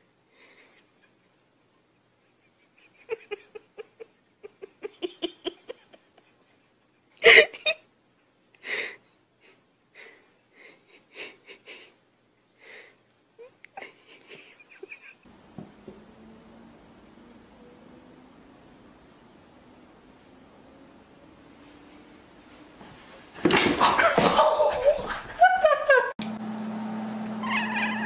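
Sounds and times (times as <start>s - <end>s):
person laughing wheezily: 7.2s - 7.8s.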